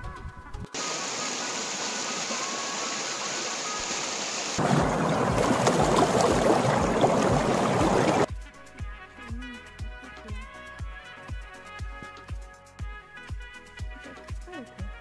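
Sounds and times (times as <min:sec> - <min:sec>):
rushing rain: 0:00.8 - 0:08.3.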